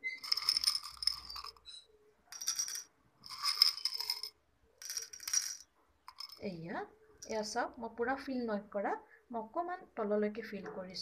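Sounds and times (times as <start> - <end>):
stones clinking against glass: 0.0 - 6.5.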